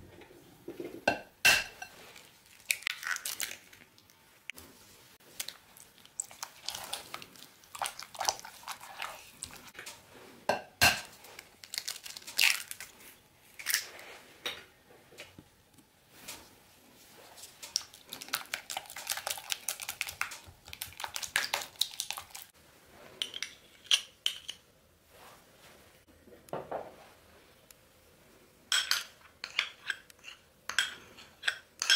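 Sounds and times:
spatula scraping and stirring: 4.5 - 10.5, 29.3 - 31.9.

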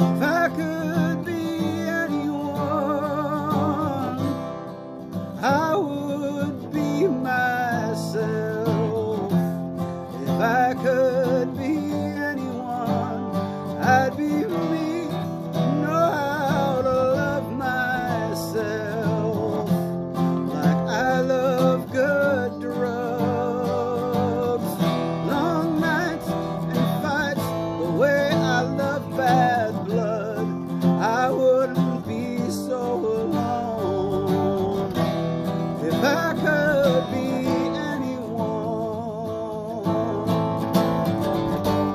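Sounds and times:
acoustic guitar: 0.0 - 41.9
man singing: 0.0 - 41.9.

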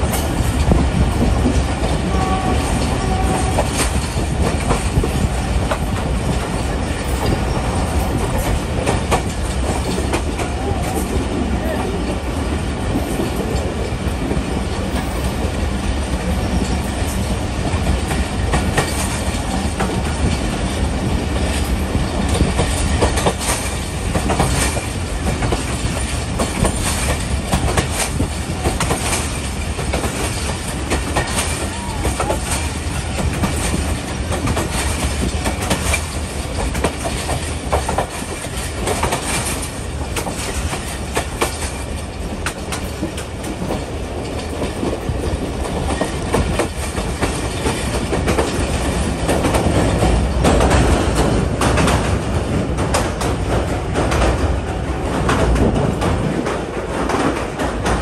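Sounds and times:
train coach rumble: 0.0 - 58.0
wheels clattering over rail joints: 0.0 - 58.0.

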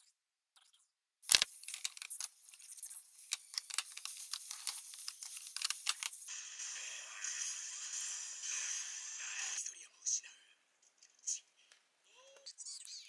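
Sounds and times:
plastic compacts clicking and tapping: 1.3 - 2.3, 3.3 - 6.2
soft rustling: 1.5 - 6.3.

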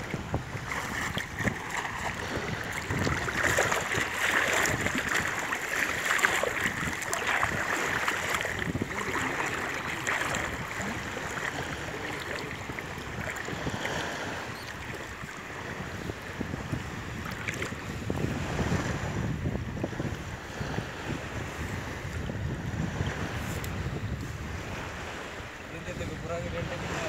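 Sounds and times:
water sloshing around legs: 0.0 - 16.2, 17.2 - 17.8
wind buffeting microphone: 0.0 - 27.0.

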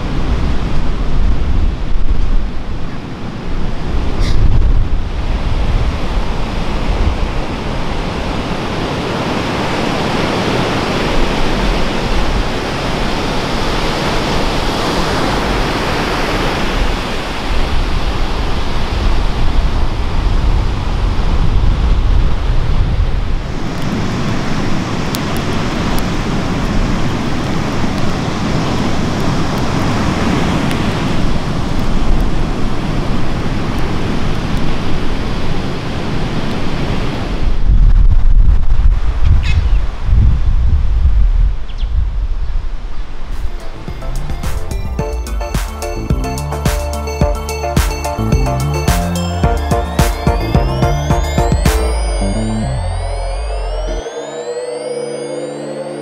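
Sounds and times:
surf washing on beach: 0.0 - 37.7
wind buffeting microphone: 0.0 - 44.1.

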